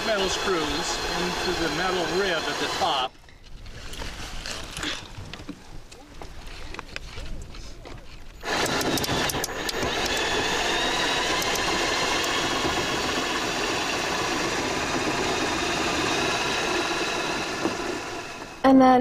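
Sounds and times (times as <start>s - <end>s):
cordless drill driving screw: 0.0s - 3.1s, 8.4s - 18.6s
drill clicks: 0.0s - 3.1s, 8.3s - 18.6s.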